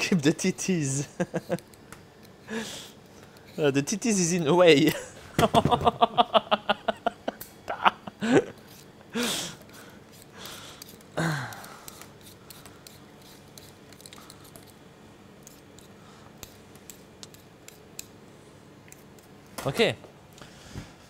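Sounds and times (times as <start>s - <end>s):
peeler scraping potato: 0.6s - 4.6s, 8.5s - 14.8s, 15.4s - 18.1s
man laughing: 0.8s - 1.7s, 4.8s - 9.5s.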